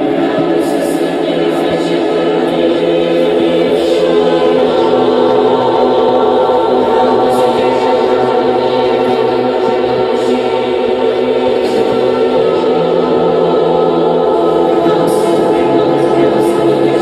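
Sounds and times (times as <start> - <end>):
noise music drone: 0.0 - 17.0.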